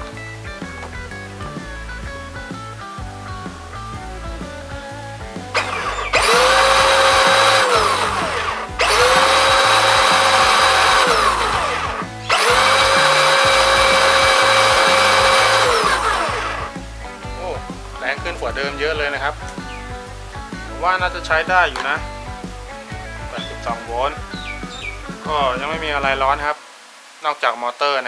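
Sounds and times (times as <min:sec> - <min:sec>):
electric motor and gearbox whining: 0:05.6 - 0:16.8.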